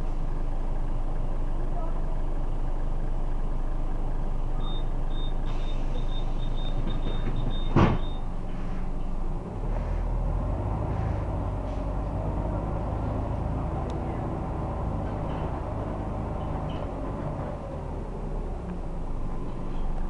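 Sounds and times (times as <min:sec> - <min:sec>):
bus diesel engine: 0:00.0 - 0:20.0
door warning beeps: 0:04.6 - 0:08.3
doors shutting thud: 0:06.8 - 0:08.2.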